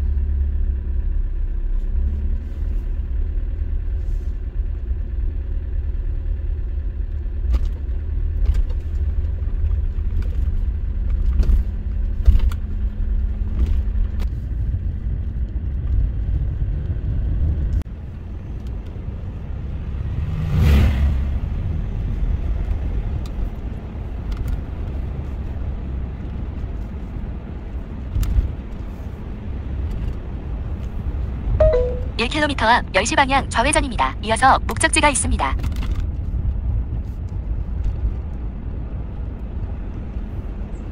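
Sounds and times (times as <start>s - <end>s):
car road noise rumble: 0.0s - 34.2s, 35.5s - 40.9s
passing vehicle whoosh: 19.0s - 22.9s.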